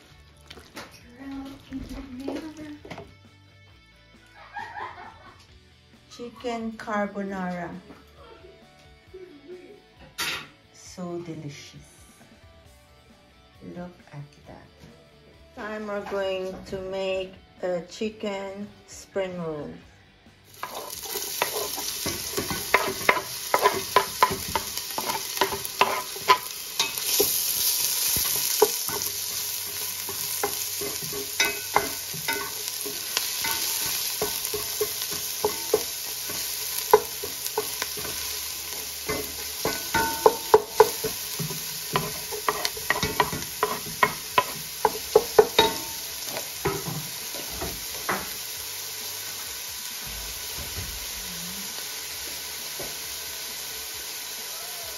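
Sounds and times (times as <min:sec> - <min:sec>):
onion sizzling in hot oil: 0:20.5 - 0:54.9
wooden spoon scraping a pot: 0:20.6 - 0:38.1.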